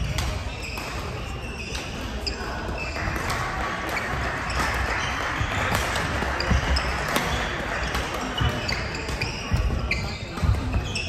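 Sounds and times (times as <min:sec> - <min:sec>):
rackets striking shuttlecock: 0:00.0 - 0:11.0
footsteps on wooden court: 0:02.5 - 0:11.0.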